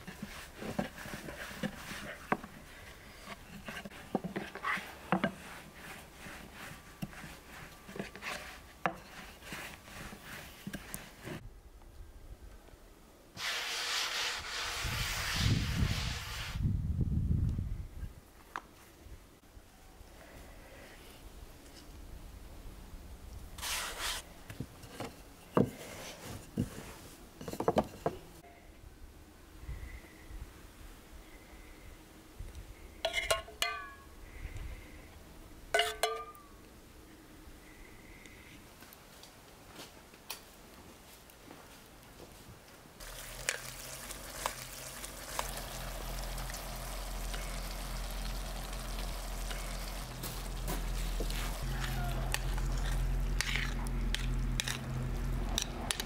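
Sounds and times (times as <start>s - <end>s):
rolling pin rubbing on dough: 0.0s - 2.5s, 3.5s - 11.4s, 13.4s - 16.6s
dough rustling: 0.0s - 11.4s, 43.0s - 55.6s.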